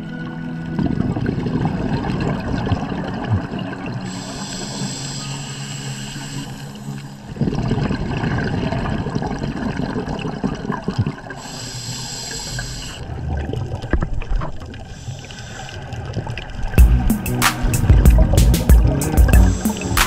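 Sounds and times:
background music: 0.0 - 8.6, 16.8 - 20.0
gurgling splashing water: 0.0 - 20.0.

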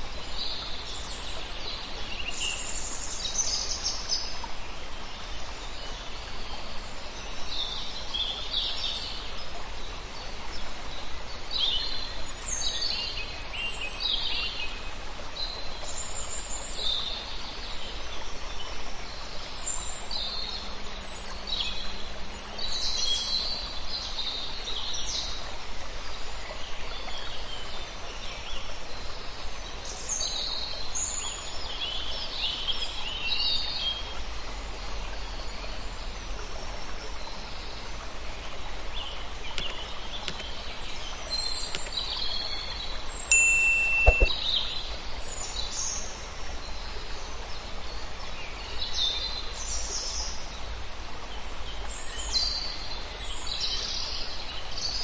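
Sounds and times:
birds chirping: 43.2 - 44.4.

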